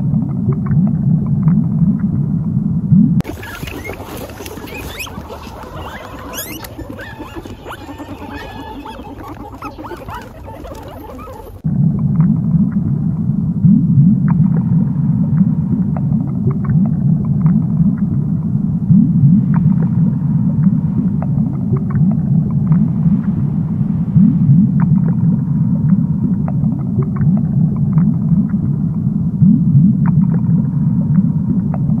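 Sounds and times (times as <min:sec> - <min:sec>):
low underwater rumble: 0:00.0 - 0:32.0
faint clicks: 0:03.2 - 0:11.6
guinea pig squeaking: 0:03.2 - 0:11.6.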